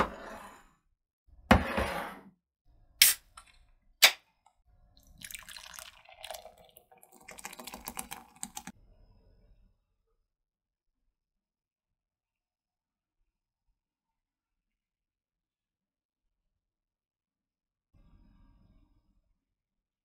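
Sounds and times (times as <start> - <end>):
beer pouring into a glass: 5.0 - 8.7.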